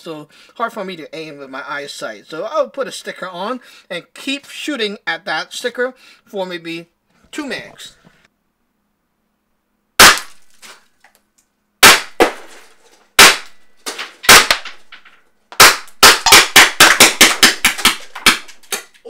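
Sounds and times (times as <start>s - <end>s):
paintball gun shots: 10.0s - 10.4s, 11.8s - 12.5s, 13.2s - 13.6s, 14.3s - 14.8s, 15.6s - 18.8s.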